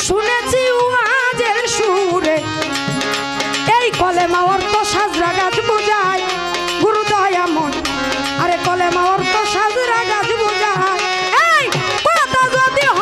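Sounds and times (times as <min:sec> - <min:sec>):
woman singing folk song: 0:00.0 - 0:02.4
instrumental accompaniment: 0:00.0 - 0:13.0.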